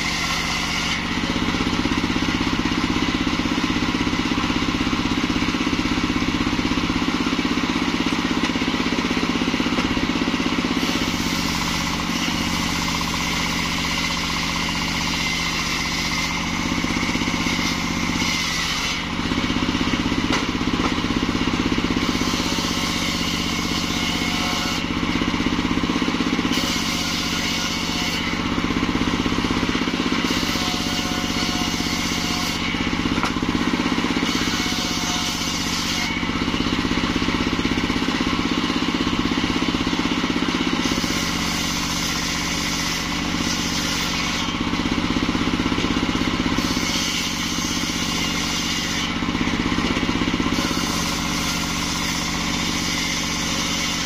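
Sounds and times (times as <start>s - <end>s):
saw blade cutting log: 0.0s - 54.0s.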